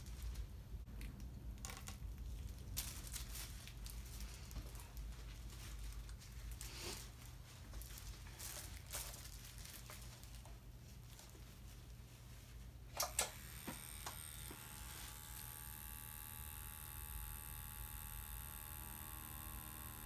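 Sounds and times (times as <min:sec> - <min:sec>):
low steady hum: 0:00.0 - 0:20.0
faint handling rustling: 0:02.2 - 0:12.8.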